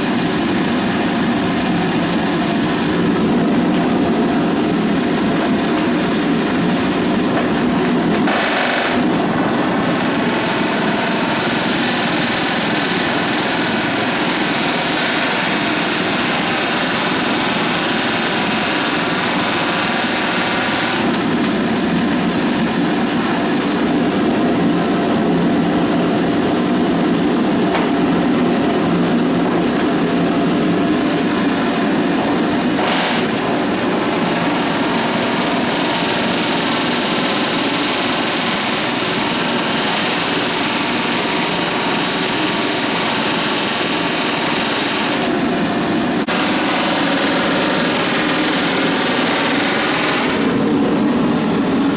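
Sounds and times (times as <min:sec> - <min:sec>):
pneumatic rivet gun hammering: 0:07.3 - 0:21.7, 0:32.8 - 0:45.7, 0:46.3 - 0:50.6.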